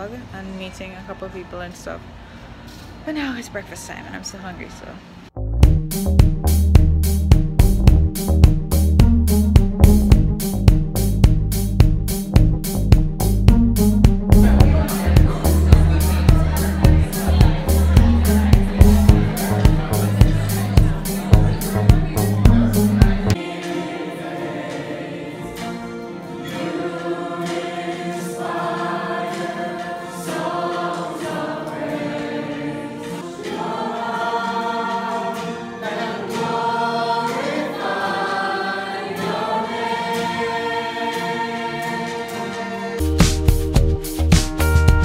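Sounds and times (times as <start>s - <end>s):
background music with steady beat: 5.4s - 35.7s, 39.3s - 45.0s
group singing worship song: 14.4s - 43.0s.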